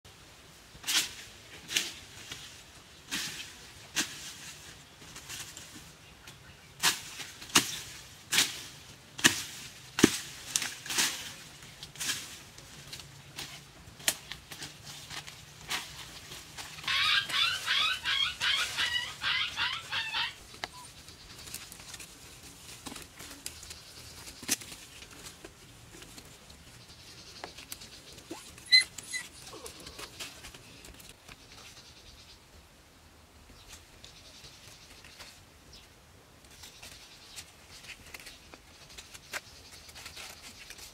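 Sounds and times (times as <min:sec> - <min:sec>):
short high squeaks: 0:28.3 - 0:29.6.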